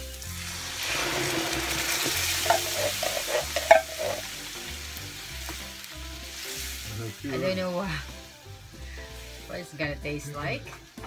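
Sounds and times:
liquid sizzling in hot oil: 0.0 - 11.0.

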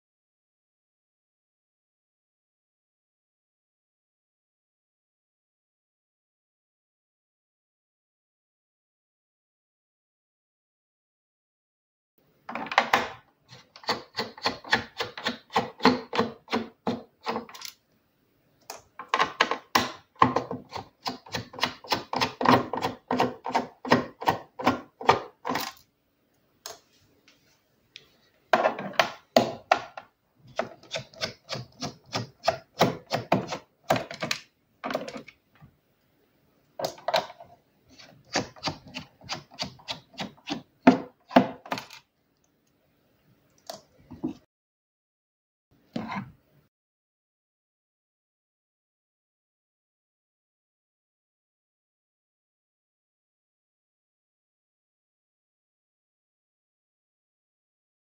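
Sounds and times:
screwdriver clicking and creaking: 17.2 - 17.8.

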